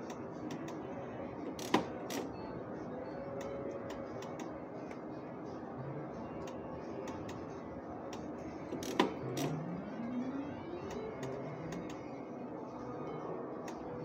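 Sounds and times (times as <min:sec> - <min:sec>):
casino machines hum: 0:00.0 - 0:14.0
rising tone: 0:09.5 - 0:12.4.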